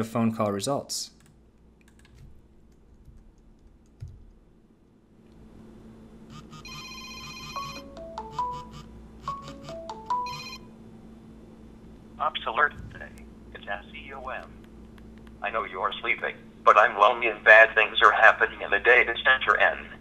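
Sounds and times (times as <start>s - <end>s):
keyboard clicks: 1.2s - 4.4s, 14.3s - 15.4s
computer ringtone: 6.3s - 10.7s.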